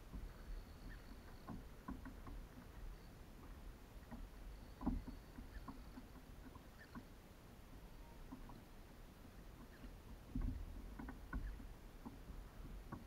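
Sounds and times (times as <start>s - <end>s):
taps against kayak hull: 1.4s - 2.7s, 4.0s - 7.1s, 9.6s - 13.0s.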